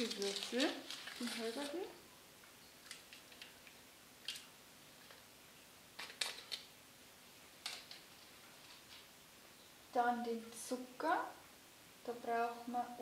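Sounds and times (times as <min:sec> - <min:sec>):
yeast crumbling crackles: 0:00.0 - 0:02.0, 0:06.0 - 0:06.7.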